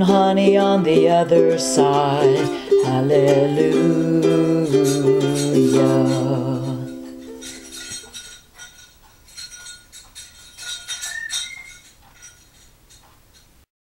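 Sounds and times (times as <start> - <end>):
ukulele chord: 0.0 - 7.8
light ringing clinks: 4.8 - 13.6.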